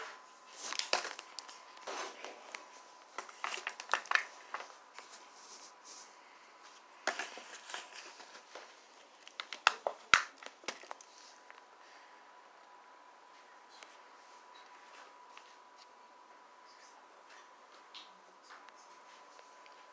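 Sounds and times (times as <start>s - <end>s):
plastic packaging crinkling: 0.5s - 5.8s, 6.9s - 11.6s.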